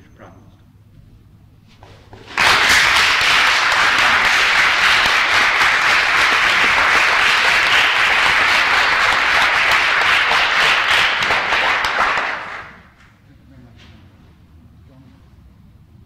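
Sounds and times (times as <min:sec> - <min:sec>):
audience applauding: 0:02.2 - 0:13.0.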